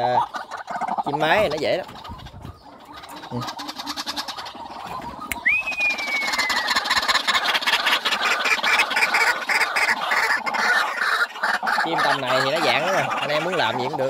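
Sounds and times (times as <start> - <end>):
bird calling loud repeated notes: 0.0 - 14.0
falling whistled bird note: 5.0 - 6.8.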